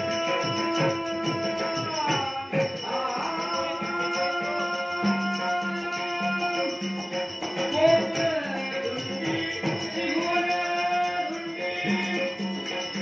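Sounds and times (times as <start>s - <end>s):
drum beat: 0.0s - 13.0s
hand cymbals jingling: 0.0s - 13.0s
man singing: 0.0s - 13.0s.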